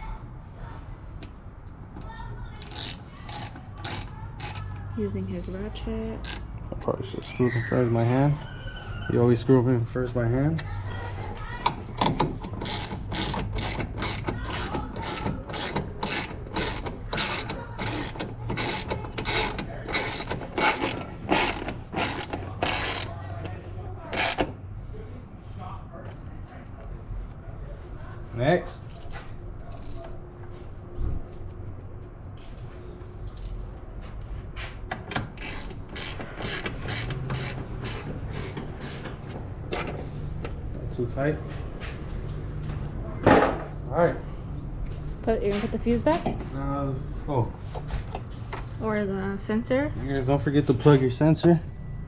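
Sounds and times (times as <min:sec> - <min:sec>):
ratchet pawl clicking: 0:02.6 - 0:04.9, 0:12.5 - 0:23.1, 0:35.4 - 0:39.4.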